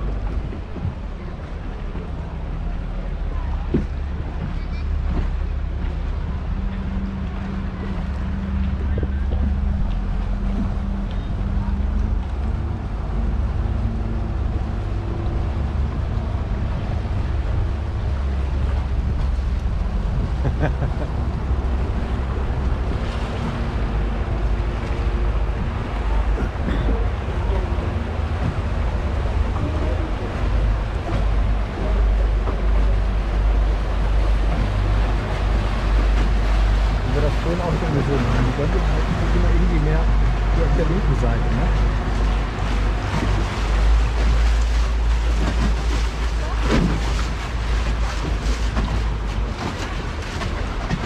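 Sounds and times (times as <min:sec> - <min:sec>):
boat engine rumbling: 0:00.0 - 0:51.0
canal water noise: 0:00.0 - 0:51.0.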